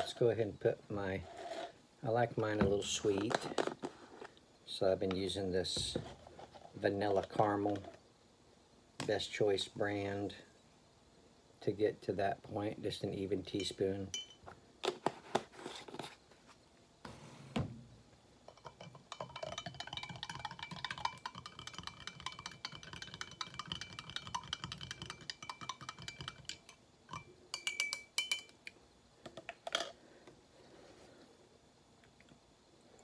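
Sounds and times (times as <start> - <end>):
teaspoon clinking in glass mug: 18.5 - 28.6.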